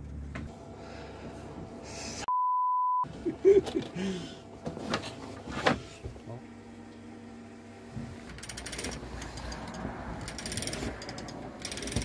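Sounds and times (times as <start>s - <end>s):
electronic censor beep: 2.3s - 3.1s.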